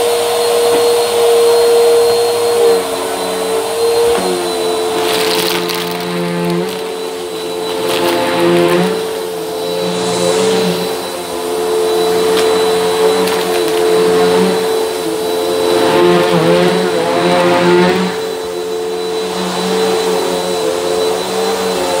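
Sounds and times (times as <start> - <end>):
vacuum cleaner running: 0.0 - 22.0
beans clicking up vacuum nozzle: 12.3 - 14.0.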